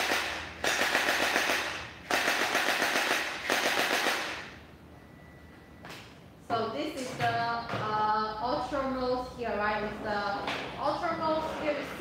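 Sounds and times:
gel blaster firing full-auto: 0:00.0 - 0:04.5.

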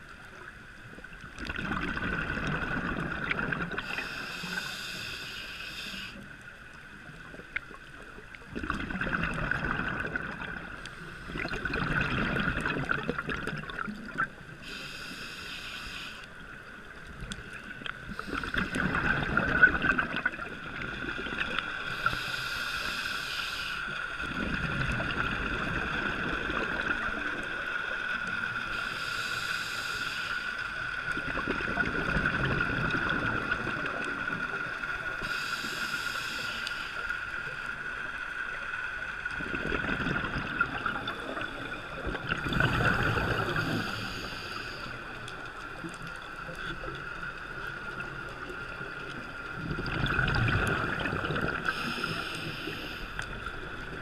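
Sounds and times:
exhaust bubbles rushing underwater: 0:00.9 - 0:04.0, 0:07.1 - 0:14.4, 0:17.0 - 0:21.8, 0:24.2 - 0:27.7, 0:31.0 - 0:35.2, 0:39.2 - 0:44.0, 0:45.0 - 0:52.2
regulator inhalation hiss: 0:03.8 - 0:06.4, 0:14.5 - 0:16.5, 0:21.8 - 0:24.2, 0:28.6 - 0:30.9, 0:35.1 - 0:37.6, 0:42.6 - 0:45.2, 0:51.6 - 0:53.6.

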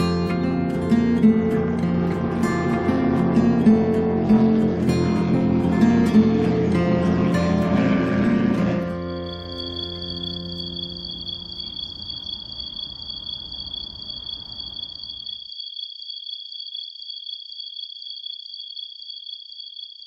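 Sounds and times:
low background rumble: 0:00.0 - 0:11.8
insects trilling: 0:00.0 - 0:20.0.

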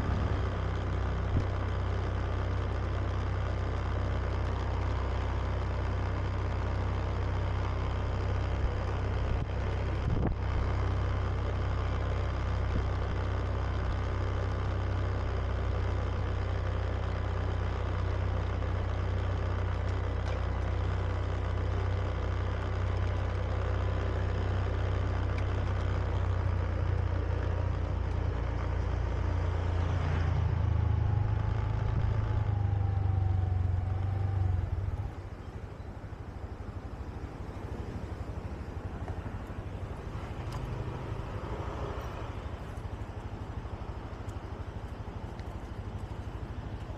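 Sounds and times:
road and wind noise: 0:00.0 - 0:46.9
scooter engine running: 0:00.0 - 0:46.9.

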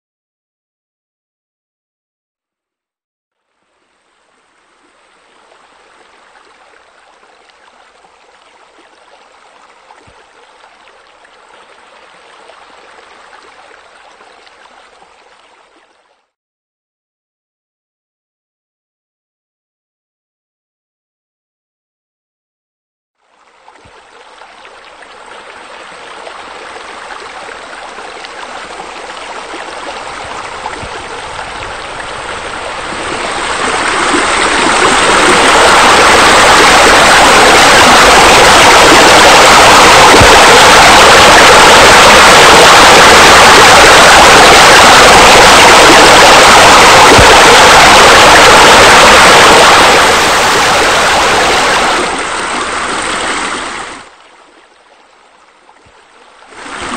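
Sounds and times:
running water rushing: 0:03.5 - 0:16.1, 0:23.2 - 0:56.9.

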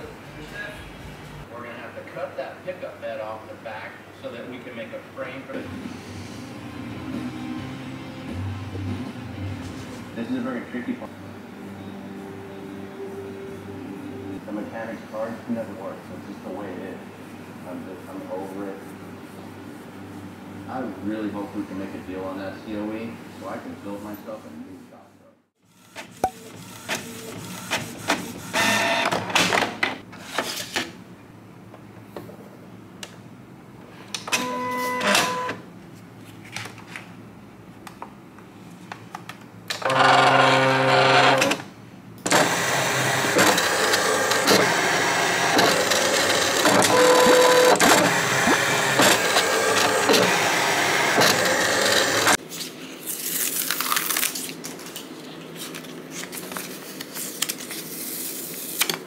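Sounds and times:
printer whirring and clicking: 0:25.9 - 0:30.0, 0:34.2 - 0:35.6, 0:39.7 - 0:41.6, 0:42.2 - 0:52.4
cutting machine motor whir: 0:42.3 - 0:52.4.

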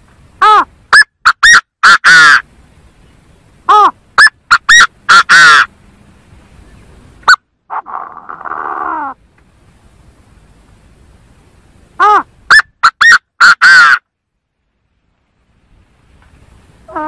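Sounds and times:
bird calling harsh phrases: 0:00.4 - 0:02.5, 0:03.6 - 0:05.8, 0:07.3 - 0:09.2, 0:12.0 - 0:14.1.

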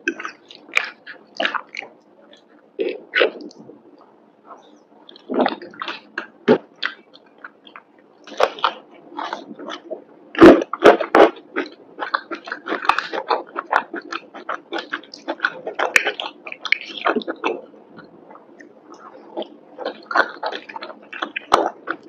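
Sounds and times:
chewing pasta: 0:00.0 - 0:04.0, 0:04.6 - 0:22.0.

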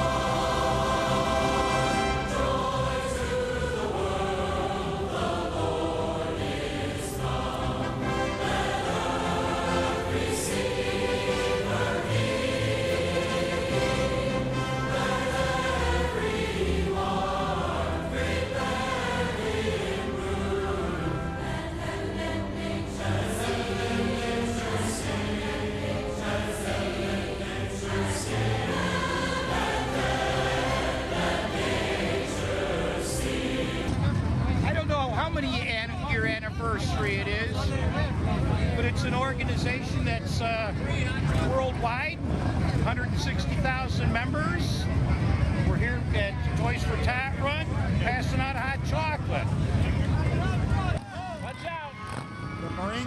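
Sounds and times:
choir singing held chords: 0:00.0 - 0:34.6.

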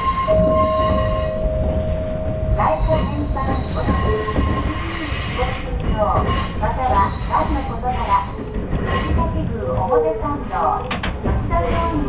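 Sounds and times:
train wheels squealing on rails: 0:00.0 - 0:01.7, 0:02.4 - 0:09.4
train wheels rumbling: 0:00.0 - 0:12.0.

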